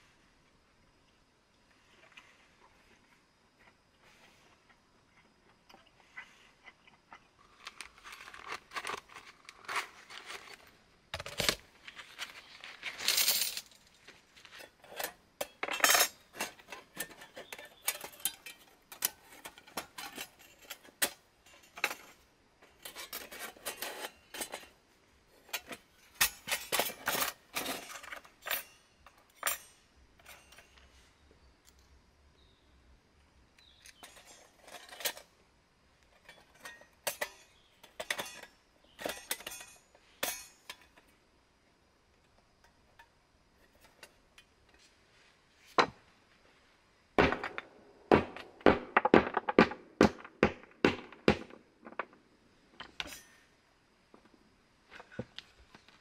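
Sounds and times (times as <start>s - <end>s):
metal panels clinking: 14.6s - 24.8s, 25.4s - 30.9s, 36.2s - 41.1s.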